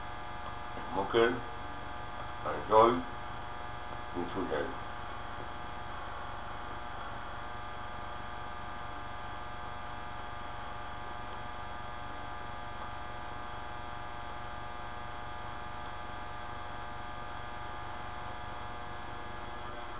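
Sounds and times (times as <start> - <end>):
electrical mains hum: 0.0 - 19.9.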